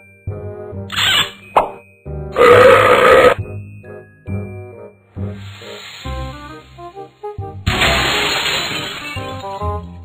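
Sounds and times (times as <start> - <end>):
loud shattering crash: 7.7 - 9.6.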